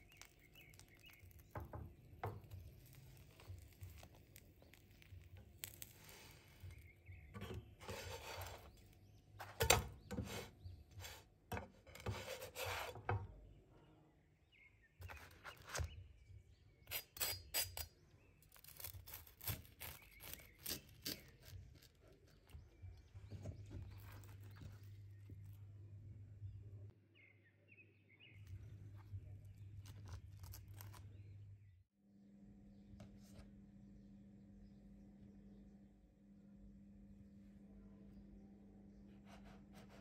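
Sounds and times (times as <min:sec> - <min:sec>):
knife slicing toasted bread: 0:02.2 - 0:08.8, 0:18.5 - 0:22.4
spatula scraping frying pan: 0:07.4 - 0:08.8, 0:11.8 - 0:13.1.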